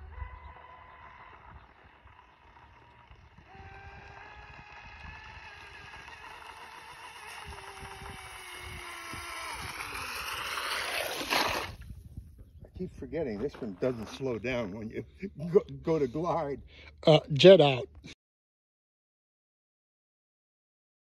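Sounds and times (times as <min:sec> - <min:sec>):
electric boat motor whining: 0:00.0 - 0:11.8.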